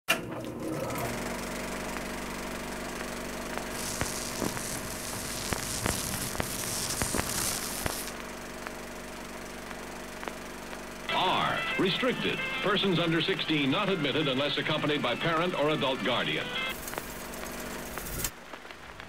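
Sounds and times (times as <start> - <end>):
film projector humming: 0.1 - 19.0
film crackle and pops: 1.2 - 11.1, 16.6 - 19.0
hiss: 3.5 - 8.2.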